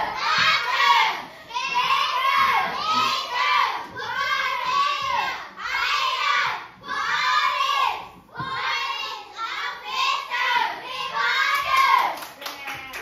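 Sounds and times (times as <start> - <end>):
children calling out in unison: 0.0 - 6.2
people clapping: 11.2 - 13.0.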